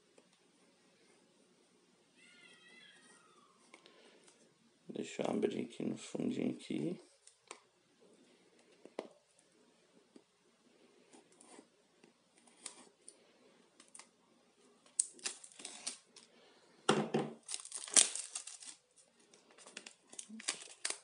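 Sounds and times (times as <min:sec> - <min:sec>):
plastic crackling and crinkling: 0:14.8 - 0:16.3, 0:17.4 - 0:21.0.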